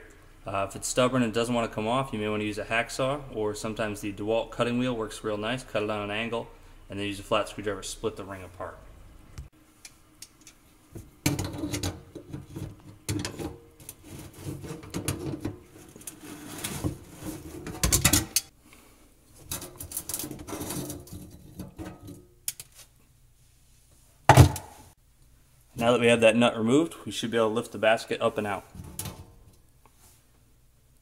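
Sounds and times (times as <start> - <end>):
metal scraping and clicking: 19.4 - 22.7.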